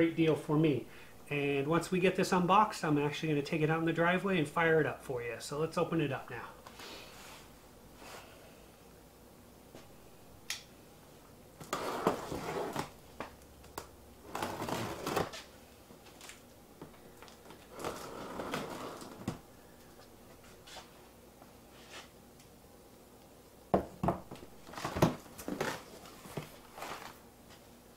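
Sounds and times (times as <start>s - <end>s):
cardboard and tape tearing: 14.2s - 15.5s, 17.5s - 19.4s.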